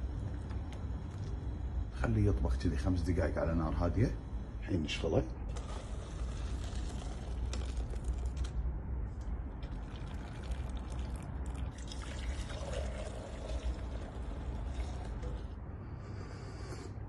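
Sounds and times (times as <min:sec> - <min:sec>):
tea pouring into steel bowl: 0:05.5 - 0:08.6, 0:09.5 - 0:15.6.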